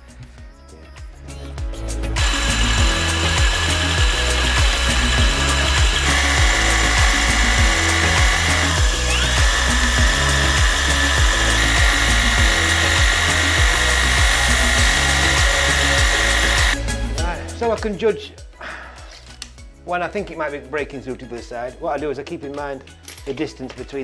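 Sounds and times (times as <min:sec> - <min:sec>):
background music with steady beat: 0:00.0 - 0:24.0
cordless drill whining into wall: 0:02.2 - 0:16.8.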